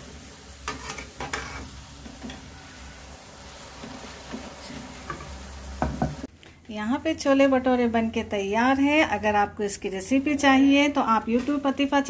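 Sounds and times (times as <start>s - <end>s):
dough sizzling in hot oil: 0.0s - 6.3s
spatula scraping metal pan: 0.7s - 2.4s.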